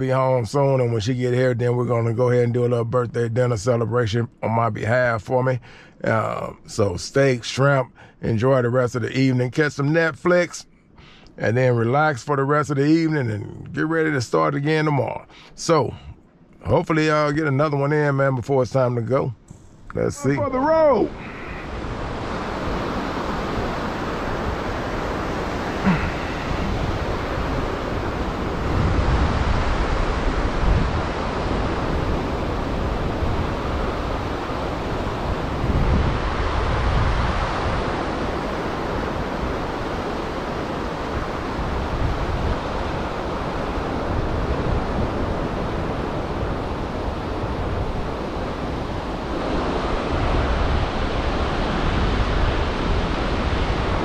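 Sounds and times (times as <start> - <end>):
wind gusting on microphone: 19.5 - 54.0
surf breaking on beach: 20.0 - 54.0.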